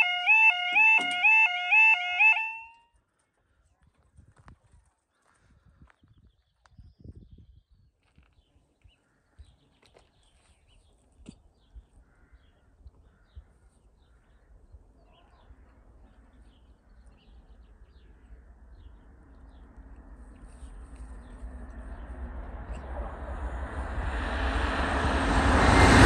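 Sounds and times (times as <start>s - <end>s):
low rumble: 17.8s - 26.0s.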